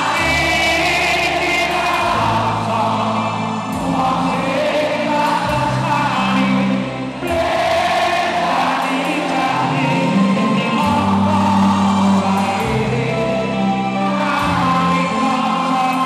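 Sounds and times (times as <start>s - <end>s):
live band playing: 0.0s - 16.0s
many voices singing together: 0.0s - 16.0s.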